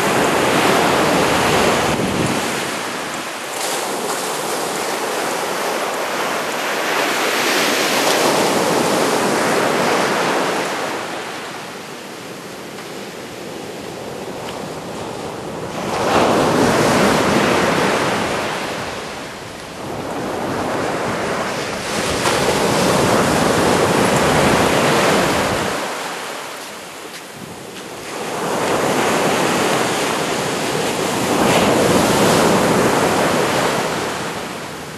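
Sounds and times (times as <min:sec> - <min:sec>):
waves breaking on sand: 0:00.0 - 0:34.9.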